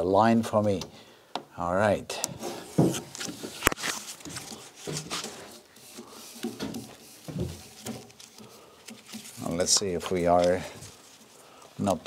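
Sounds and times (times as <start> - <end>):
rustling: 2.4 - 12.0
footsteps on wooden floor: 2.7 - 3.5, 4.2 - 8.3.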